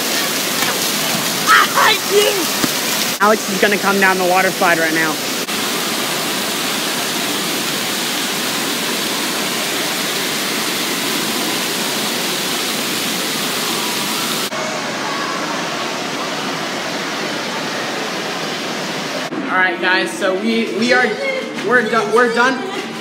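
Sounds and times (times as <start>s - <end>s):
rushing water: 0.0s - 19.3s.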